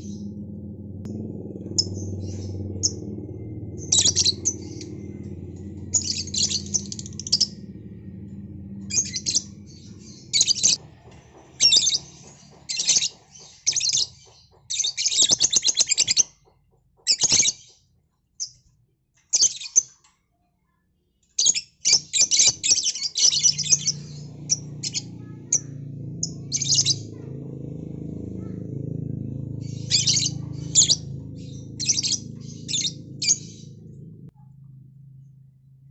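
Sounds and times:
low steady hum: 0.0s - 10.8s
lovebirds chirping: 3.7s - 7.6s, 8.8s - 10.8s, 29.5s - 34.1s.

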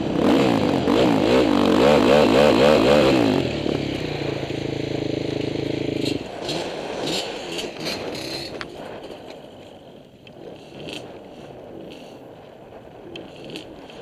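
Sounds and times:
dirt bike engine cutting off: 0.0s - 9.2s.

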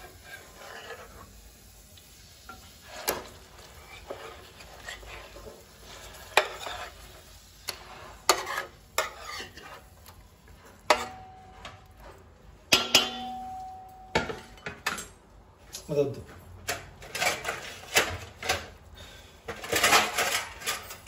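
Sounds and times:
utensils scraping metal pan: 0.0s - 1.4s, 2.5s - 11.6s, 17.0s - 18.7s, 19.5s - 21.0s
oil sizzling: 0.0s - 13.8s
pan clanking and ringing: 10.9s - 11.8s, 12.7s - 14.7s.

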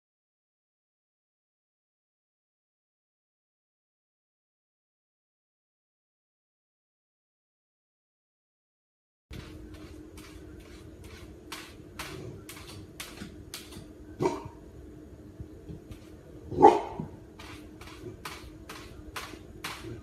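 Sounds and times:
paw scratching a door: 9.3s - 13.9s, 15.9s - 20.0s
low hum: 9.3s - 20.0s
puppy barking: 14.2s - 14.6s, 16.5s - 17.2s.

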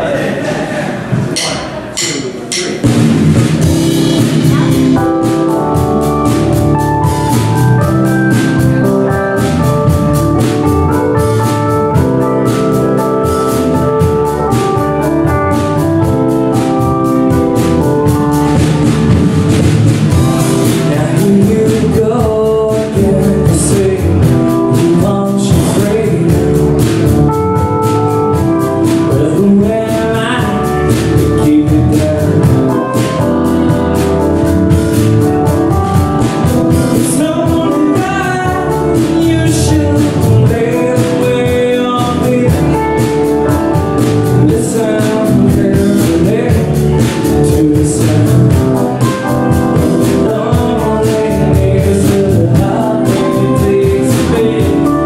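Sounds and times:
drum kit: 0.0s - 55.0s
keyboard: 0.0s - 55.0s
electric guitars: 2.9s - 55.0s
person singing lead vocal: 3.8s - 6.2s, 20.1s - 27.6s, 28.3s - 35.8s, 36.4s - 55.0s.

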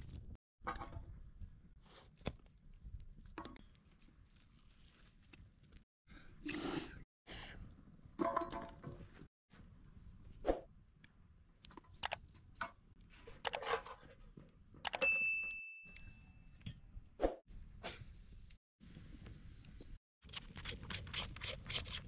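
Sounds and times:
ringing metallic ding: 15.0s - 16.4s.

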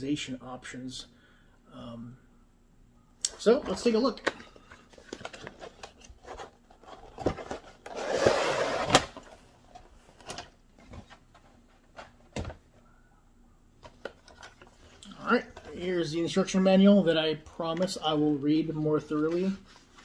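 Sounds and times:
cardboard lid sliding off: 7.9s - 9.1s.

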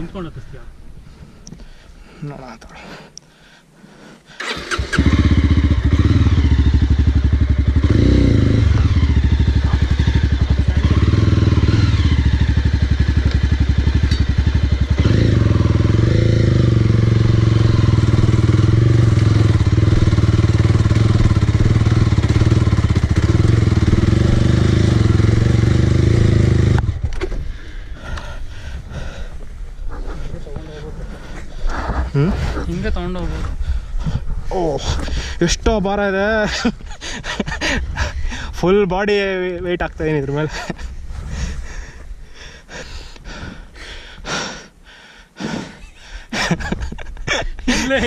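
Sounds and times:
motorcycle engine at high revs: 4.7s - 27.1s.

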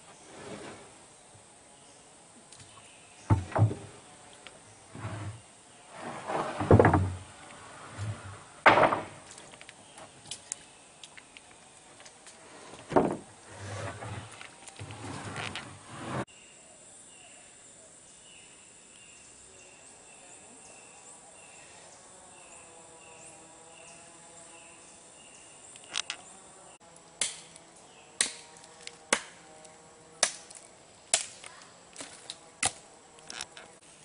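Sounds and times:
sharp knocks: 3.3s - 3.9s, 8.6s - 9.2s.

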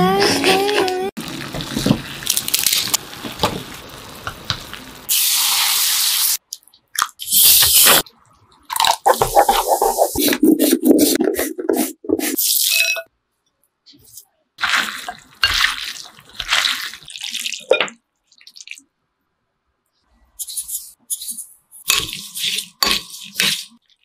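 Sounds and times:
sauce pouring and food tossing: 14.6s - 18.8s.

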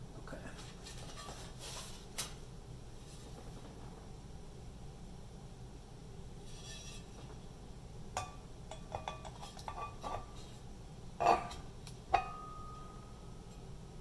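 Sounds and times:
metal platter ringing: 11.2s - 13.7s.

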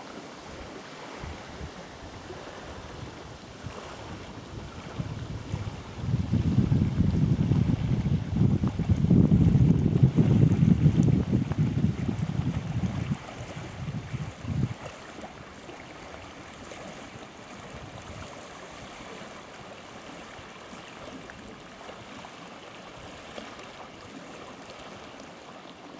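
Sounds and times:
small waves on lake shore: 0.0s - 25.9s
soft wind: 0.0s - 25.9s
wind buffeting microphone: 0.5s - 19.2s.

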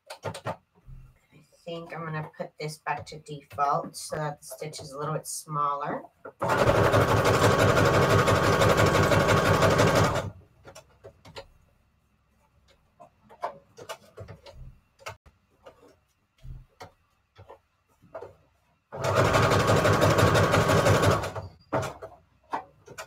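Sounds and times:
sewing machine stitching: 6.4s - 10.3s, 18.9s - 22.2s.

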